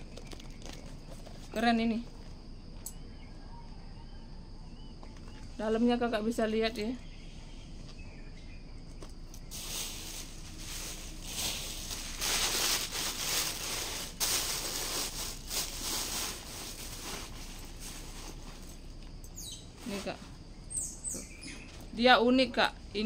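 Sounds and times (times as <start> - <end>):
plastic bag crinkling: 9.4 - 18.9.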